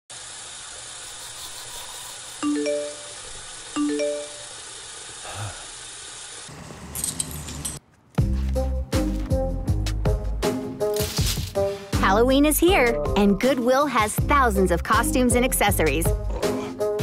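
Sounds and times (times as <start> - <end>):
phone message alert chimes: 3.8 - 4.5.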